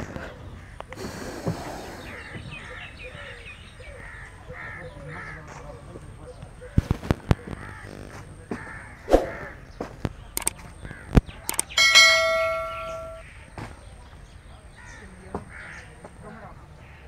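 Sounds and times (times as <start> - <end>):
birds calling: 0.0 - 17.0
clicks: 10.0 - 13.2
bell-like ding: 11.8 - 13.2.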